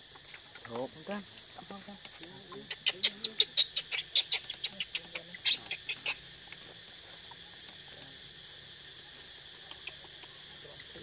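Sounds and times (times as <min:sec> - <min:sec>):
infant monkey squeaking: 0:02.6 - 0:06.2.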